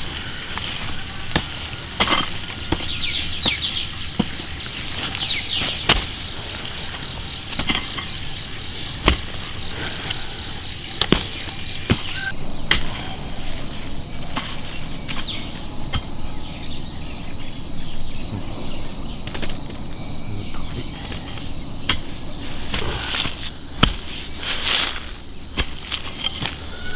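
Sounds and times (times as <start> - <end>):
digging tool chopping into soil: 0.0 - 8.2, 9.0 - 10.2, 11.0 - 13.0, 21.9 - 26.9
high insect drone: 0.0 - 26.9.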